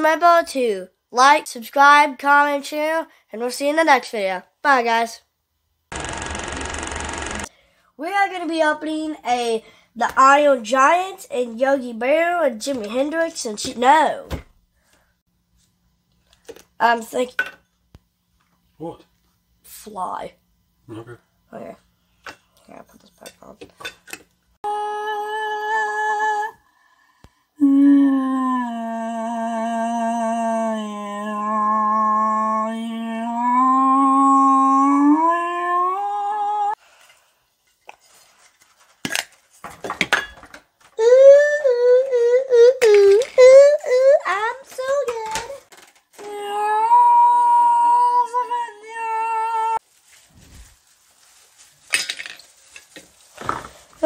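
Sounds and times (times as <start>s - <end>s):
boy humming into a bottle: 24.6s - 26.6s, 27.6s - 36.8s, 41.0s - 45.5s, 46.2s - 49.8s
child singing into a plastic bottle: 41.0s - 49.8s.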